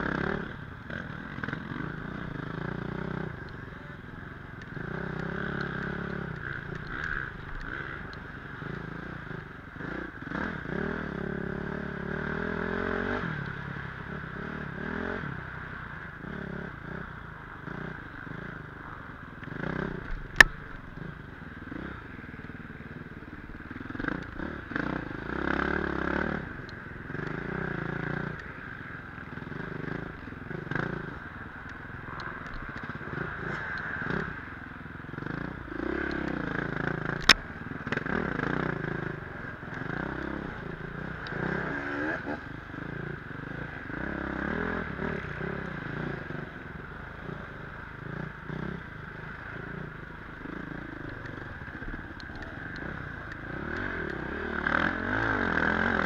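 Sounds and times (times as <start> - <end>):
dirt bike engine revving: 23.0 - 31.4, 32.0 - 56.0.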